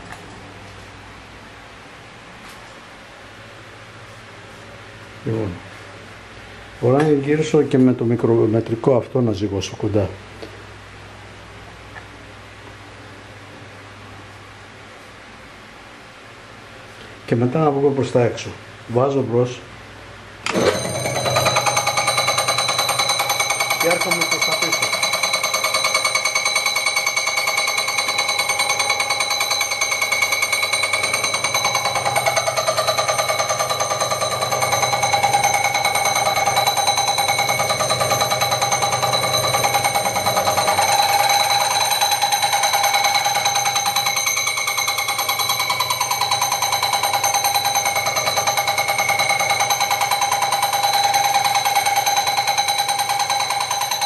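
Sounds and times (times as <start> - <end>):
lathe motor whining: 20.5 - 54.0.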